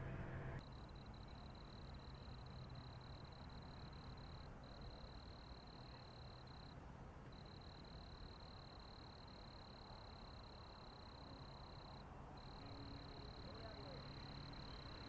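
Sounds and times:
vehicle engine hum: 0.0s - 0.6s
faint low rumble: 0.0s - 15.0s
insect high-pitched trill: 7.4s - 15.0s.

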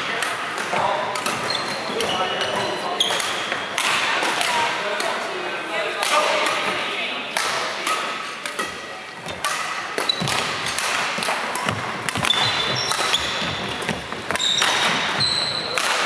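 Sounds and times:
racket striking shuttlecock: 0.1s - 5.1s, 7.3s - 16.0s
shoes squeaking on floor: 1.3s - 3.7s, 8.6s - 10.4s, 11.6s - 15.8s.

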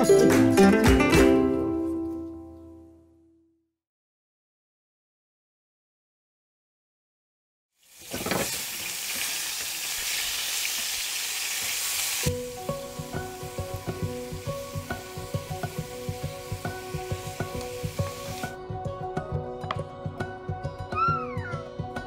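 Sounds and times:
music with repeated notes over beat: 0.0s - 1.7s
vegetables sizzling in pans: 7.8s - 18.6s.

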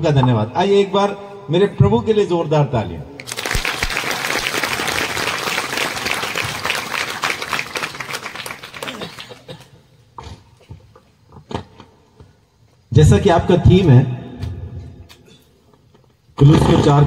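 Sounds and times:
congregation applauding: 3.2s - 9.8s.

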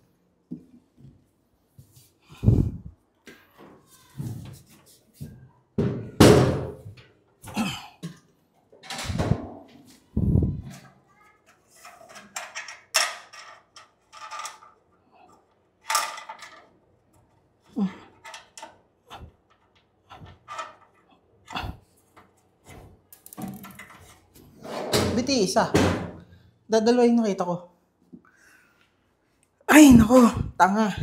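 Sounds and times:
metal cabinet thudding on floor: 5.8s - 6.8s, 24.8s - 26.2s.

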